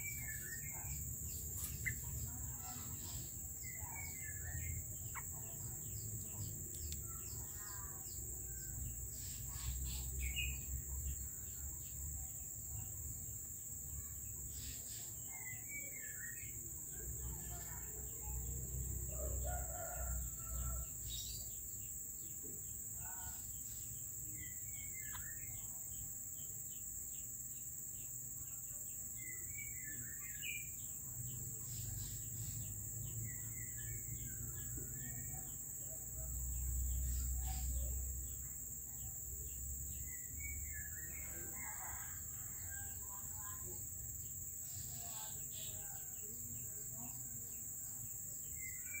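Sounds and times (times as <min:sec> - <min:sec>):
bird chirps and calls: 0:00.0 - 0:08.2.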